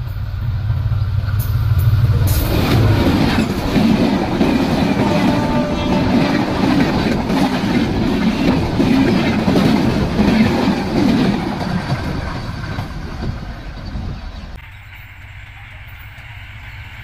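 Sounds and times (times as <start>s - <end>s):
train wheels clattering over rails: 0.7s - 17.0s.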